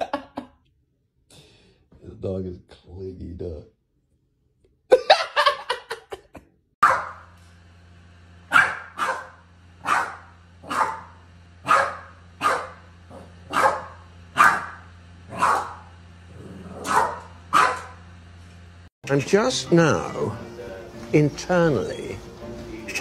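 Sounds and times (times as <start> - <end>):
dog barking: 6.8 - 7.2, 8.5 - 15.9, 16.7 - 18.0
steady low hum: 7.0 - 21.1.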